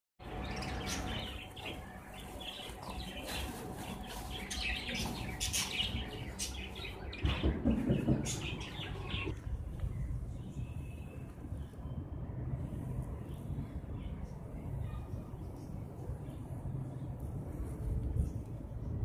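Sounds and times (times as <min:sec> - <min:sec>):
small birds chirping: 0:00.2 - 0:12.0.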